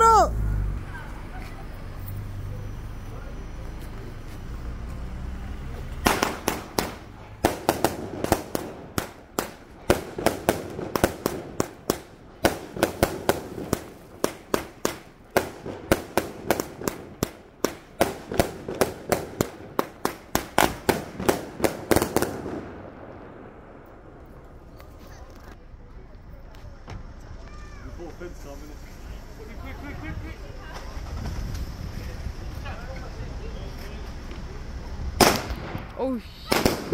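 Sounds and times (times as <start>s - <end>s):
fireworks bangs: 5.9s - 25.0s, 35.1s - 36.9s.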